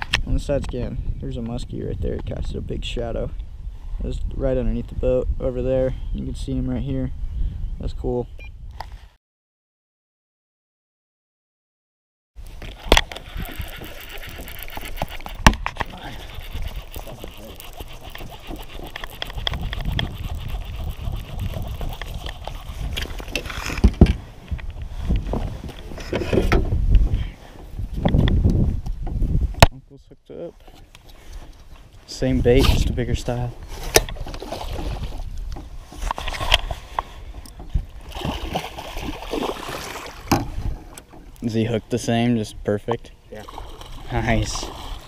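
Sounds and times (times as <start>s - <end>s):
wind buffeting microphone: 0.0s - 9.0s, 12.4s - 29.8s, 32.2s - 41.4s
handling and movement noise: 12.4s - 29.2s
fish thrashing and splashing: 12.6s - 23.8s, 37.9s - 40.3s.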